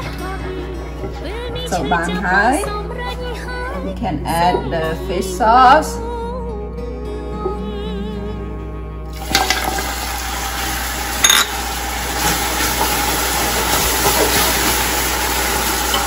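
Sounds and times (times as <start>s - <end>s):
liquid sizzling and bubbling in pot: 9.1s - 16.0s.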